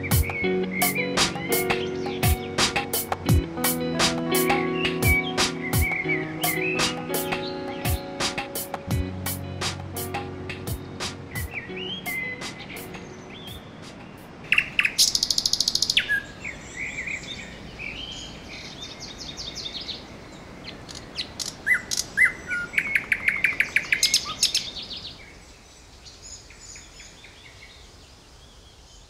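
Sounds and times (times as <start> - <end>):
woodpecker calling: 4.3 - 8.8, 11.3 - 17.3
bird chirps: 4.4 - 8.2, 11.3 - 27.8.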